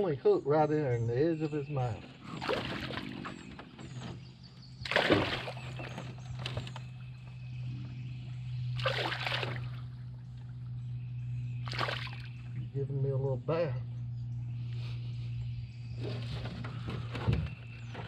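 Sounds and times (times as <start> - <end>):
fish thrashing and splashing: 2.3 - 3.5, 4.8 - 6.7, 8.8 - 9.9, 11.6 - 12.4.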